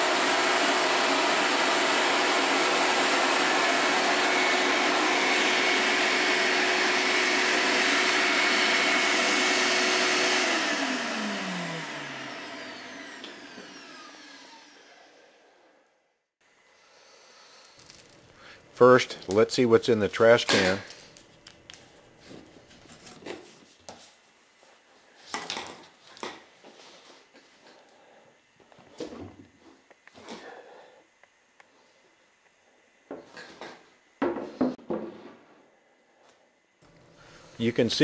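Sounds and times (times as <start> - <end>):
vacuum motor winding down: 0.0 - 16.0
shop vacuum running: 0.0 - 24.0, 25.4 - 35.5.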